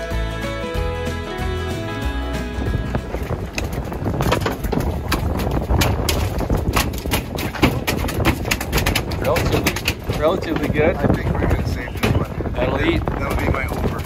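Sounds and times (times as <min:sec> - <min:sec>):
low rumble of wind and boat: 0:00.0 - 0:14.0
fish slapping on metal deck: 0:03.5 - 0:11.2.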